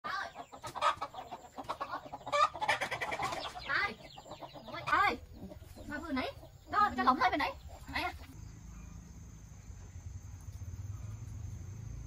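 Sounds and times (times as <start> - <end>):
chickens clucking: 0.1 - 9.1.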